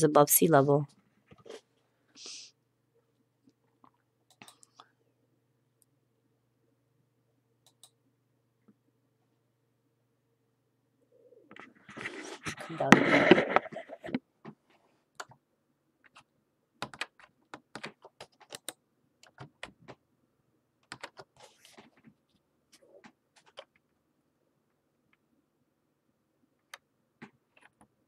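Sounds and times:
computer keyboard clicks: 7.6 - 8.0, 16.1 - 20.0, 20.8 - 21.3.

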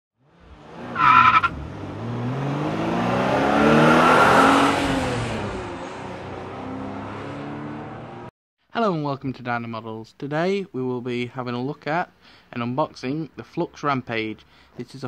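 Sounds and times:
car engine revving: 0.2 - 8.3
tyre squeal: 1.0 - 1.5.

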